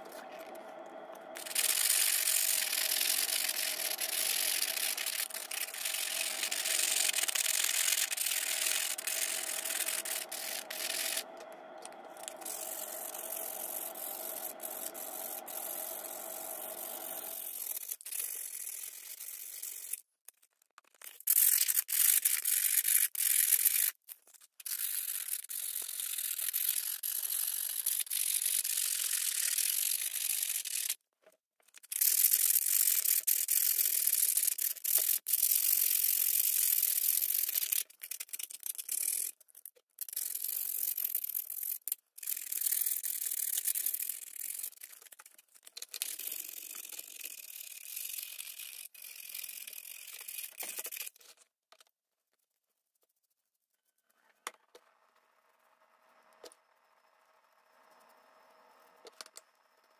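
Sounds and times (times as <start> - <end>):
sandpaper rubbing on metal: 1.4 - 11.3, 12.2 - 20.0.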